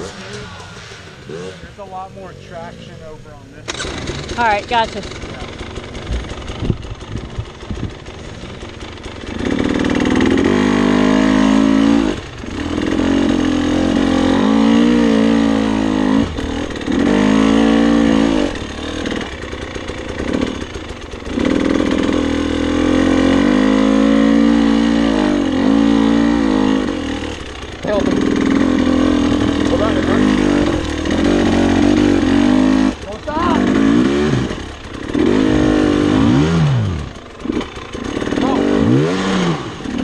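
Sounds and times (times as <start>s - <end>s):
dirt bike engine revving: 0.0s - 40.0s.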